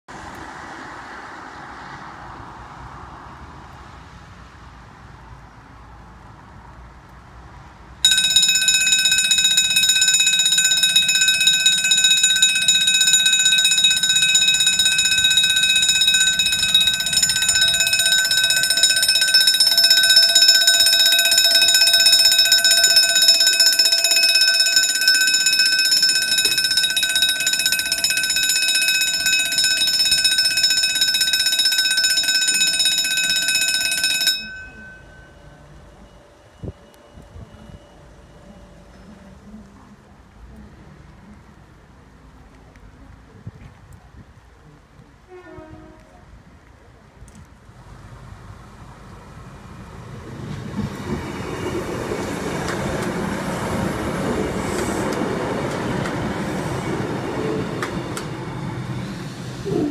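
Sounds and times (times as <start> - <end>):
level crossing warning bell: 8.0 - 40.0, 50.1 - 59.9.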